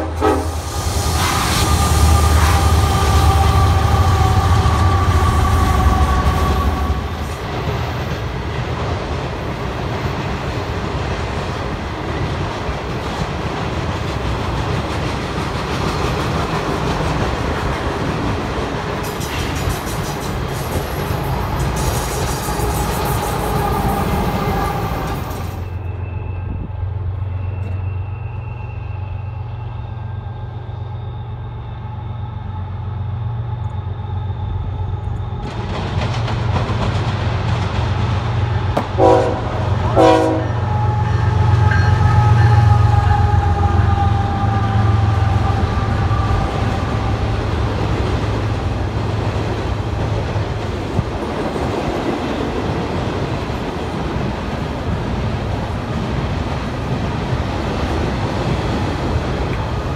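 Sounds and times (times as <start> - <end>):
train horn blasts: 0.0 - 7.4, 38.8 - 47.8
freight train rumbling: 0.0 - 59.9.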